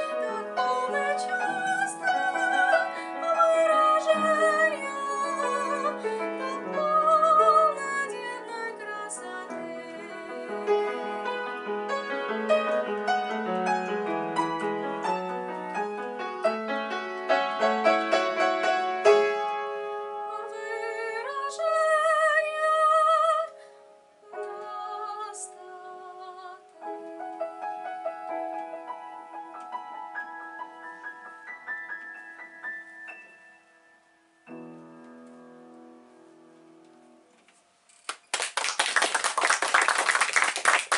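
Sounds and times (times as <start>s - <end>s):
soprano singing with vibrato: 0.0s - 11.7s, 20.2s - 23.6s, 24.2s - 27.2s
grand piano accompaniment: 0.0s - 23.6s, 24.3s - 37.4s.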